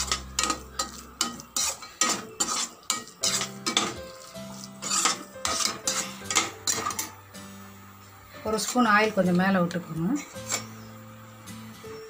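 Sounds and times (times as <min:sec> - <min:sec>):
metal ladle scraping a pan: 0:00.0 - 0:07.3, 0:08.3 - 0:11.0
faint sizzle: 0:00.0 - 0:12.0.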